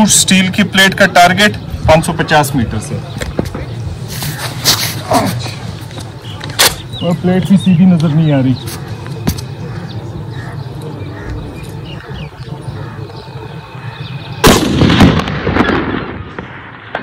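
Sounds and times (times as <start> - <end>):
rifle shot with echo: 14.4 - 17.0.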